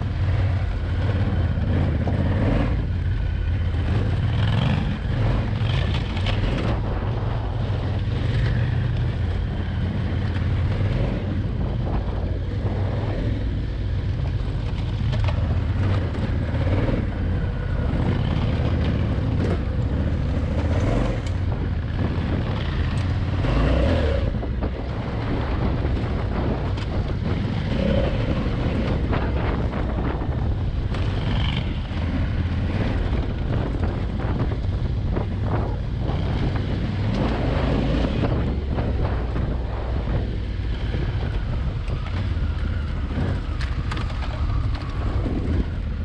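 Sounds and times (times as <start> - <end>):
motorcycle engine running: 0.0 - 46.0
wind on microphone: 0.0 - 46.0.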